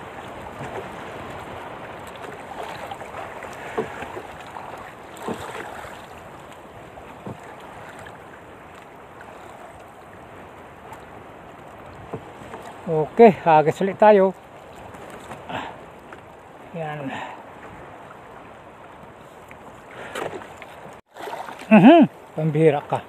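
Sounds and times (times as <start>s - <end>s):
strong wind: 0.0s - 13.6s
water sloshing against boat hull: 0.0s - 23.0s.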